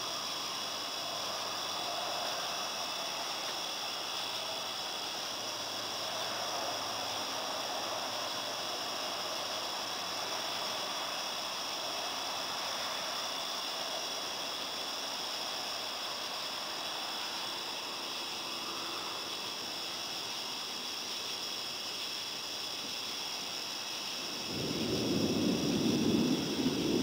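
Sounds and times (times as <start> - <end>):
crickets chirping: 0.0 - 27.0
rushing hiss: 0.0 - 27.0.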